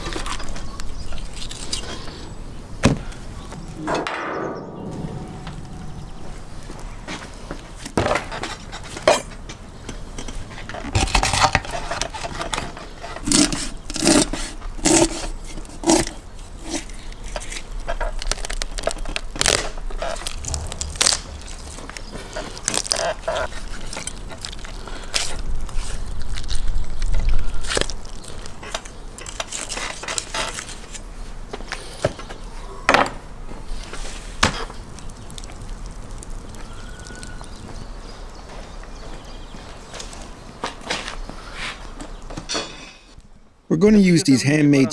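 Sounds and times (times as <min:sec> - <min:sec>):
low rumble: 0:03.6 - 0:07.6, 0:19.9 - 0:23.0.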